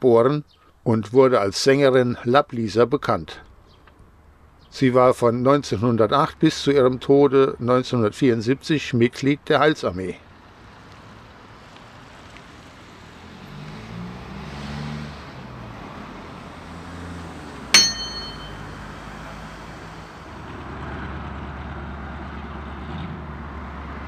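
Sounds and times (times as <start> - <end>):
car engines in traffic: 10.2 - 17.8, 18.7 - 24.0
bell-like ding: 17.8 - 18.8.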